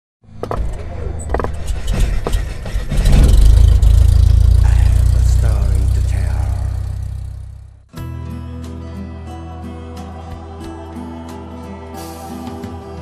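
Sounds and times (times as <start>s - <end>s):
deep rumble: 1.2s - 7.9s.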